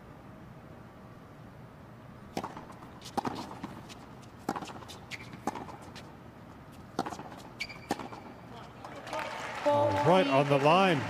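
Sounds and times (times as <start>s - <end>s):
low arena background: 0.0s - 11.0s
tennis ball pops: 2.3s - 3.8s.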